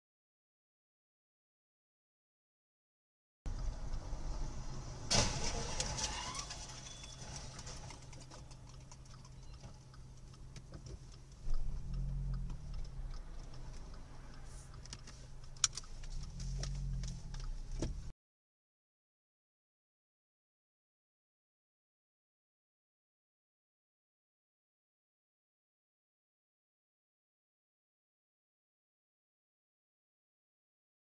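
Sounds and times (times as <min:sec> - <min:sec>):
low vehicle rumble: 0:03.5 - 0:18.1
sharp clicks and clatters: 0:05.1 - 0:18.1.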